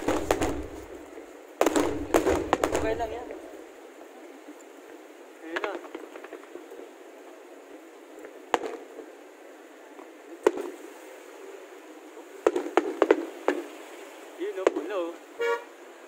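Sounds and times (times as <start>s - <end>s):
fireworks bangs: 0.0s - 3.4s, 5.4s - 6.6s, 8.5s - 9.0s, 10.4s - 10.8s, 12.4s - 13.8s, 14.4s - 15.6s.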